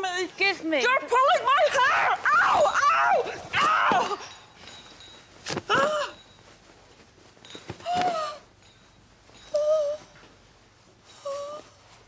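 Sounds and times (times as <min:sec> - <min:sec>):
woman crying out in pain: 0:05.7 - 0:06.2.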